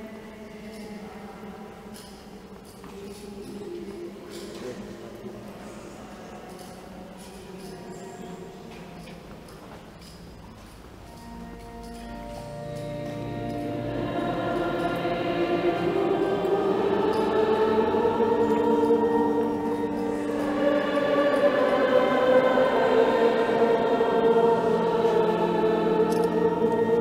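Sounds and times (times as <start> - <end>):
choir singing held chords: 11.1 - 27.0.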